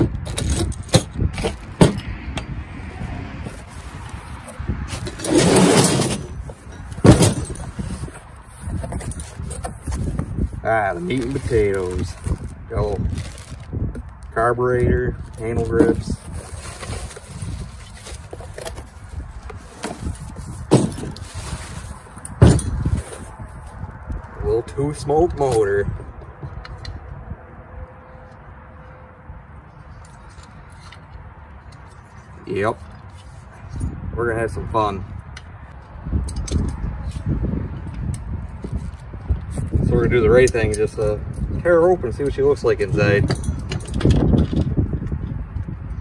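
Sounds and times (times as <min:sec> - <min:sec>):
wind rumble on microphone: 0:00.0 - 0:46.0
plastic bag rustling: 0:11.0 - 0:13.9, 0:15.2 - 0:22.2.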